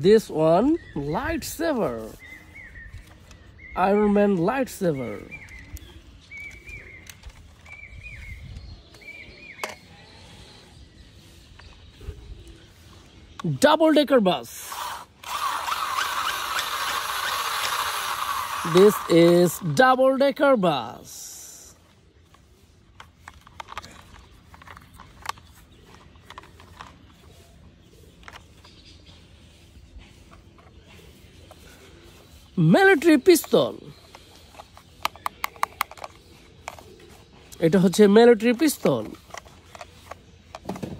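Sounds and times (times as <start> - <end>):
plastic toys clicking: 14.5 - 19.8, 23.0 - 27.2, 33.0 - 36.9, 37.5 - 40.9
plastic toy clicks and taps: 33.4 - 36.8.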